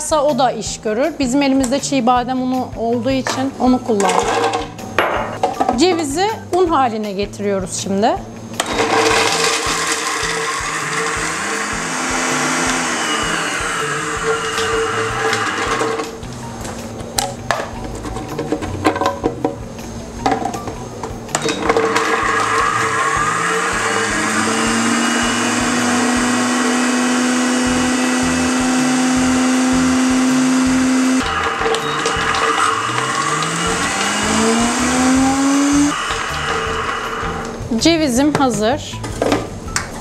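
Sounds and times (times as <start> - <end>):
blender grinding nuts: 8.6 - 16.2, 21.5 - 37.6.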